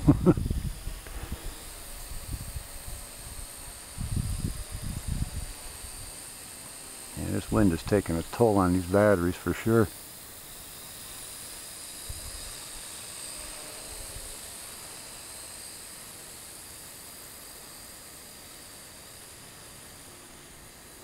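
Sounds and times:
wind rumbles on microphone: 0.0s - 5.6s
drone motors whining: 0.0s - 21.0s.

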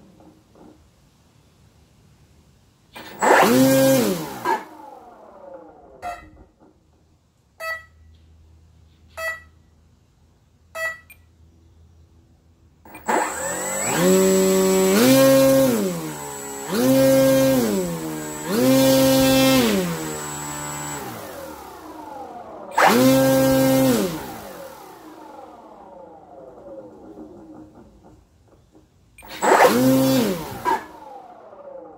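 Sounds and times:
electric motor spinning up: 3.0s - 6.2s, 12.9s - 27.8s, 29.2s - 31.9s
short beeps: 7.6s - 8.1s, 9.1s - 9.7s, 10.7s - 11.3s.

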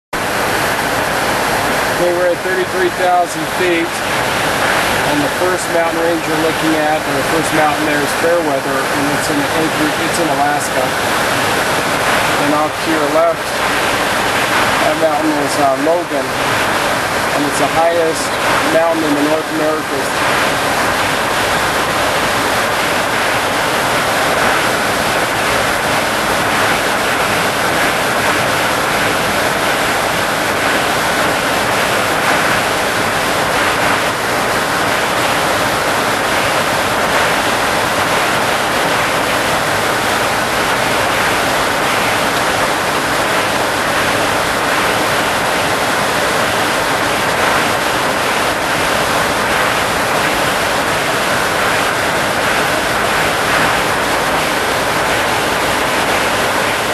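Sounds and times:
cockpit airflow rush: 0.2s - 22.4s.

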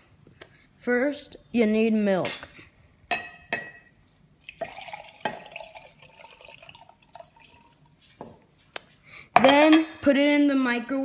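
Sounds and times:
milk pouring into mug: 4.4s - 8.1s.

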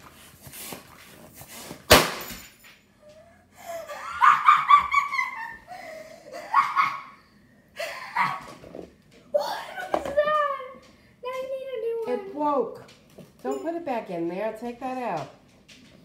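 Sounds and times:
laughter: 3.6s - 7.2s, 7.8s - 8.7s.

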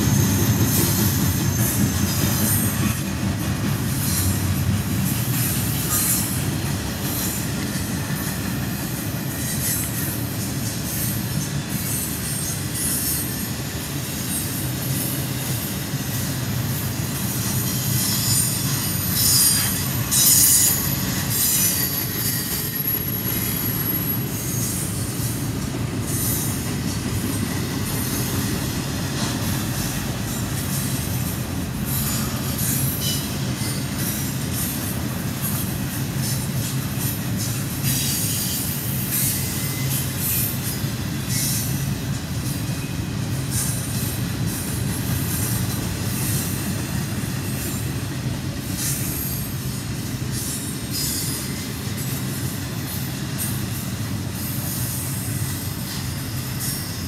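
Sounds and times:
short clicks of train wheels: 0.0s - 57.0s
train wheels rumbling on rails: 0.0s - 57.0s
high-pitched wheel squeal: 17.6s - 25.1s.

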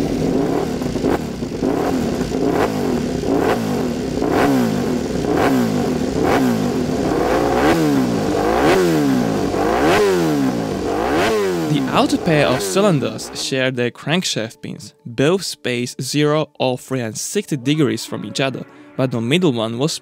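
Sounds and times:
motorcycle engine revving: 0.0s - 13.6s.

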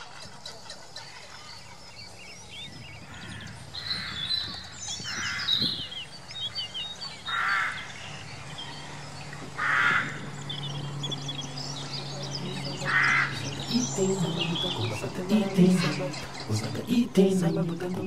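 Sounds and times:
high bird chirps: 0.2s - 18.0s
seabird cawing calls: 3.0s - 16.7s.

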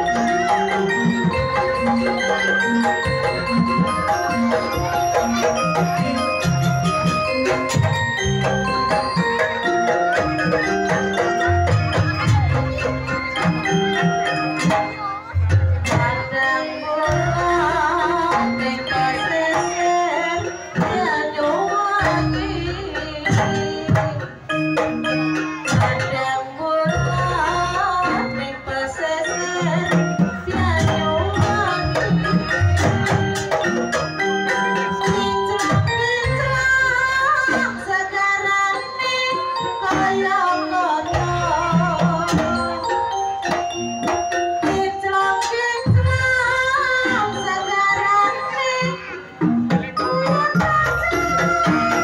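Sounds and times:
hand drums beating: 0.0s - 26.4s, 29.4s - 37.7s
ornamented gamelan melody: 0.0s - 52.0s
person singing: 44.6s - 52.0s.

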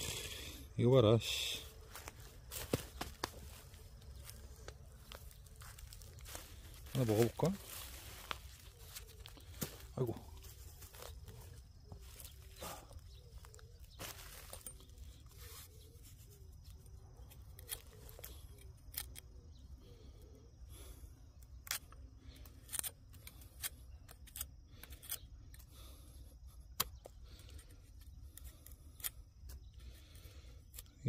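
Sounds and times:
hoe blade scraping potato skin: 17.3s - 19.2s, 21.6s - 25.7s.

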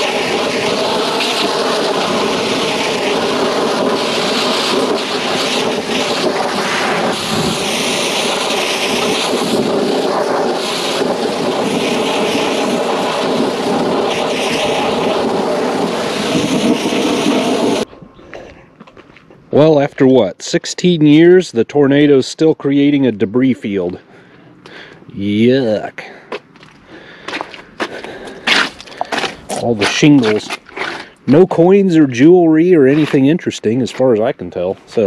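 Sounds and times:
pressure washer spray hissing: 0.0s - 17.8s.

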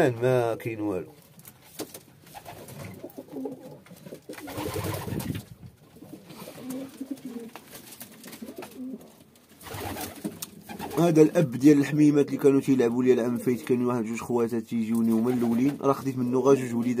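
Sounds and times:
pigeons cooing: 2.4s - 5.4s, 6.0s - 7.6s, 8.2s - 11.1s.

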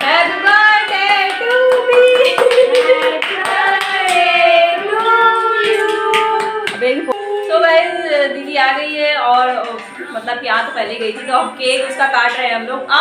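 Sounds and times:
people singing together: 0.0s - 9.3s
hands clapping in time: 0.5s - 4.3s, 4.9s - 7.2s.

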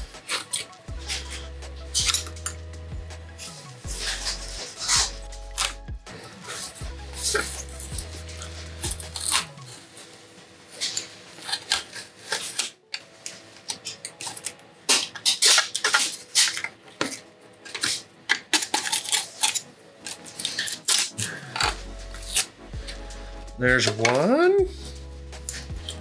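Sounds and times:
metal spatula scraping plastic: 13.7s - 23.0s.

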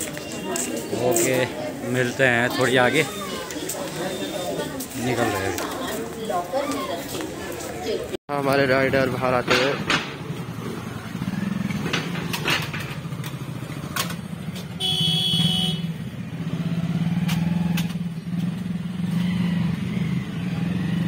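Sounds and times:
motorcycle engine idling: 10.0s - 16.4s.

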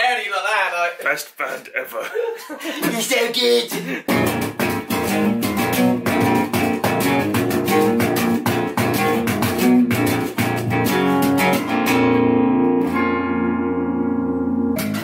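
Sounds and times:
electric and bass guitar riff: 4.1s - 15.0s.

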